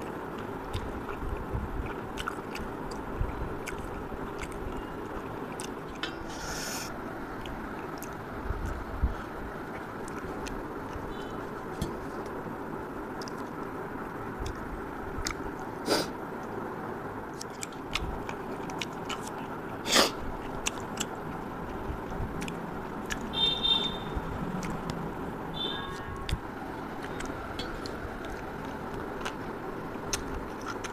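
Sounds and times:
person chewing: 0.0s - 12.5s, 13.1s - 16.1s, 17.3s - 23.5s, 24.4s - 30.9s
wet mouth noises: 0.2s - 12.4s, 14.4s - 16.2s, 17.3s - 23.5s, 24.4s - 30.9s
background hiss: 6.2s - 7.0s.

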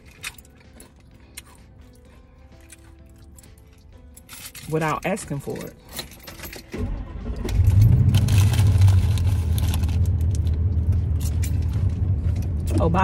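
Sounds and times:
keys jangling: 0.0s - 6.8s, 10.9s - 11.9s
van engine starting and idling: 6.0s - 13.0s.

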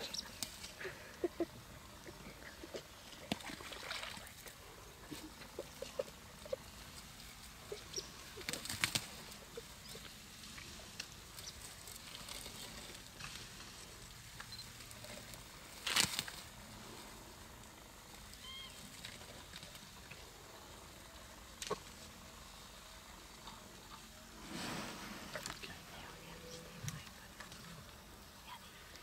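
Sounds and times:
faint rustling: 0.0s - 29.0s
vegetation tearing: 15.8s - 16.4s.

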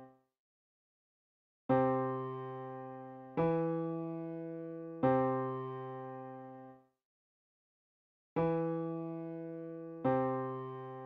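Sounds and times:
piano notes: 1.7s - 6.7s, 8.4s - 11.0s.

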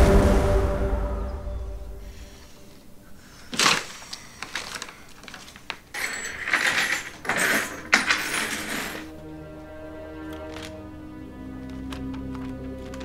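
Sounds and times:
paper rustling: 3.2s - 9.1s, 10.3s - 10.8s, 11.6s - 13.0s.

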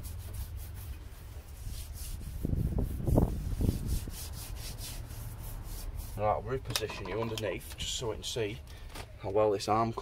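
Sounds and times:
hand brush scrubbing metal: 0.0s - 8.2s.

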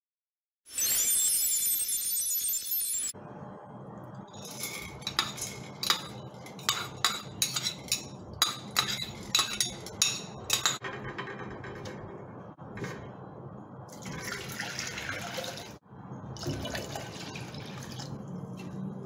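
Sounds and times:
metal spoon clinking on a pot: 4.4s - 11.0s.

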